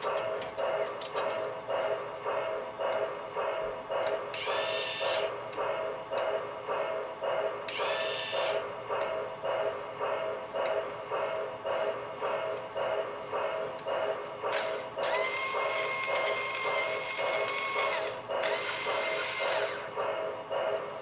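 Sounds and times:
toy crane motor humming: 4.3 - 5.3, 7.7 - 8.6, 14.5 - 20.0.

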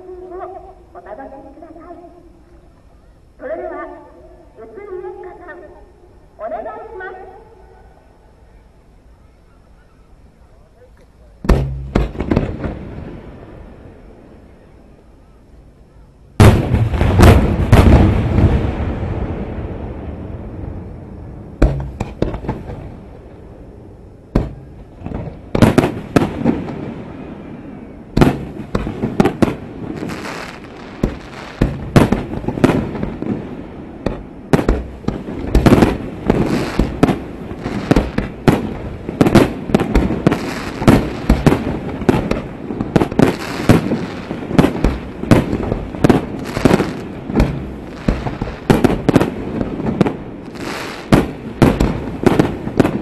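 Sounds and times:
fireworks bangs: 11.4 - 14.4, 16.4 - 53.0.

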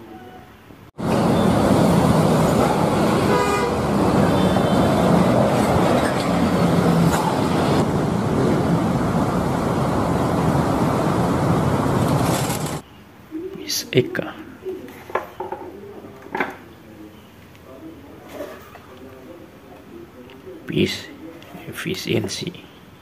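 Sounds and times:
buses driving past: 1.0 - 12.8
vehicle horn: 2.6 - 5.4.

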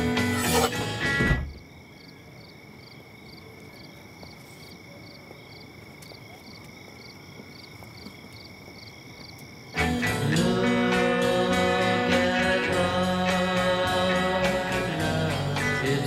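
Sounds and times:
crickets chirping: 0.0 - 16.0.

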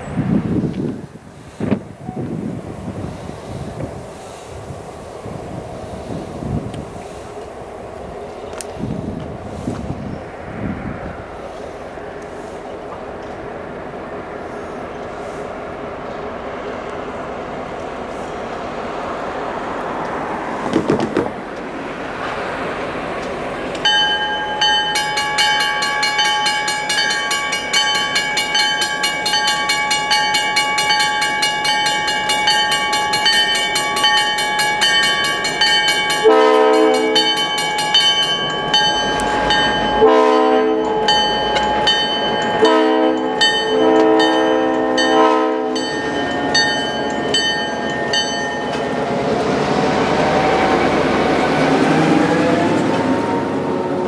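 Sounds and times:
train passing: 0.0 - 54.0
locomotive bell ringing: 23.8 - 49.2
locomotive air horn blasts: 36.2 - 37.4, 39.9 - 41.0, 42.6 - 46.0.

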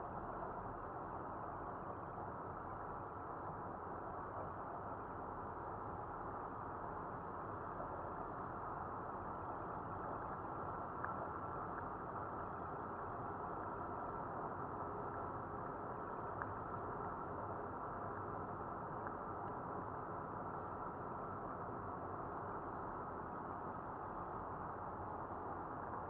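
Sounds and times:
faint ticks: 10.8 - 12.8, 15.1 - 19.8.

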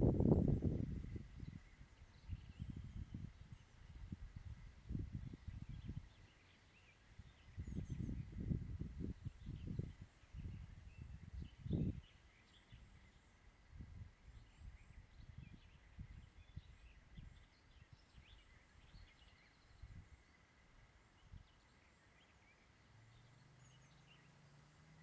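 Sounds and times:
wind rumbling on microphone: 0.0 - 6.4, 7.1 - 20.6
distant birds chirping: 1.0 - 25.0.

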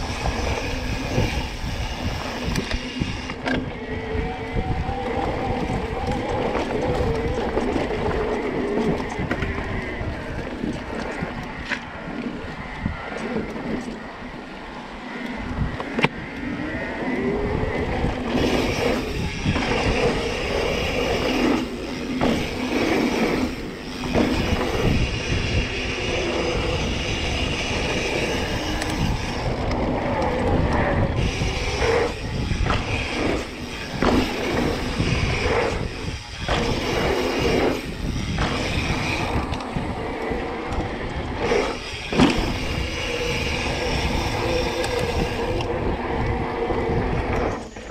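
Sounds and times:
bike tyres rumbling on dirt: 0.0 - 14.0, 15.4 - 47.9
bike rattling: 0.0 - 47.9
wind on microphone: 0.0 - 47.9.

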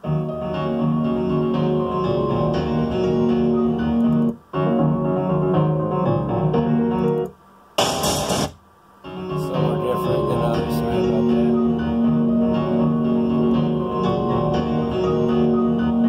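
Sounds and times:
piano chords: 0.0 - 16.0
loud hiss burst: 7.8 - 8.6.

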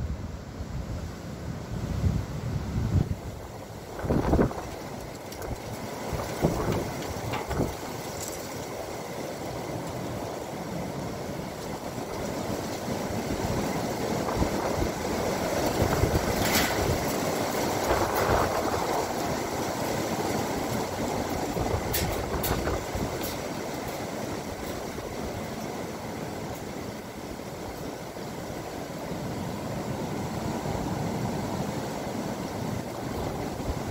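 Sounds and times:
gusty wind on microphone: 0.0 - 8.4, 12.8 - 25.8, 29.2 - 33.9.

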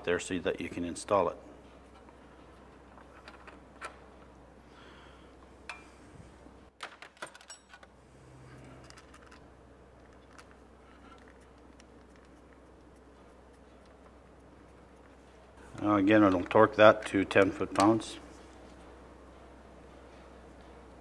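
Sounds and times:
metal tools clinking: 7.2 - 7.9.

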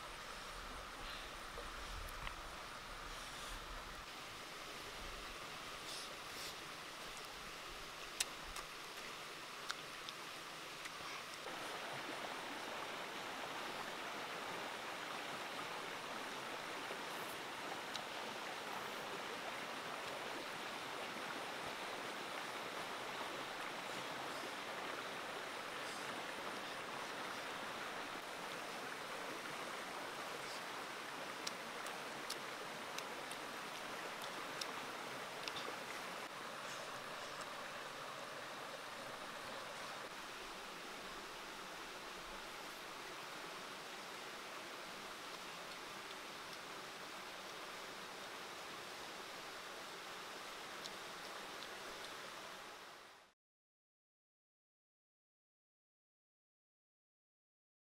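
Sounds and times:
flowing water: 0.0 - 53.3
faint ticks: 35.4 - 36.0.

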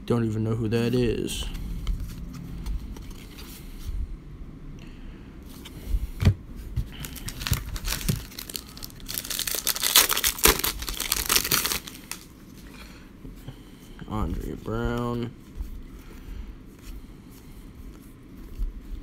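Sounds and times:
foil wrapper crinkling and tearing: 7.0 - 12.3.

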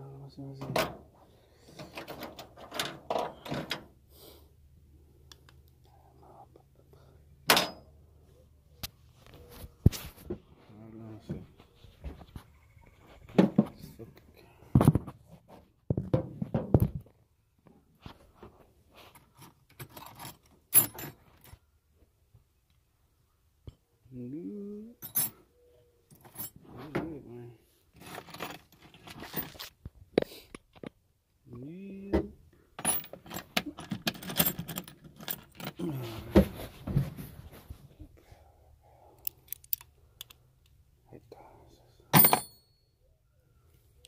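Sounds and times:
metal tools clinking and rattling: 7.5 - 7.9, 19.2 - 21.6, 25.0 - 25.4, 28.0 - 29.7, 32.8 - 35.9, 42.2 - 42.8.

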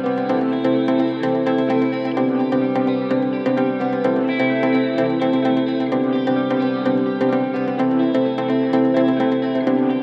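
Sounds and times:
background music: 0.0 - 10.0.

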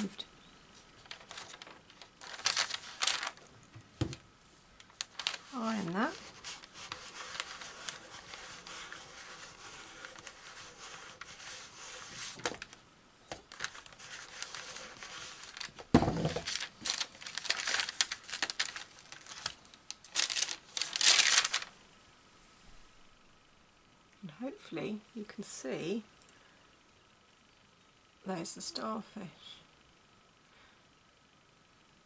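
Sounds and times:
paper crinkling and rustling: 0.8 - 4.2, 4.8 - 21.7
iron rubbing over paper: 5.1 - 12.7, 13.5 - 19.5.

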